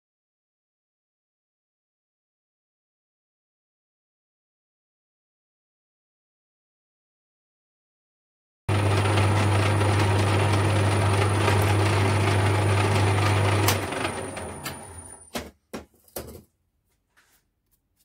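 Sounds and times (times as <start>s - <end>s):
metal lathe drilling aluminium: 8.7s - 15.2s
lathe winding down: 8.7s - 15.3s.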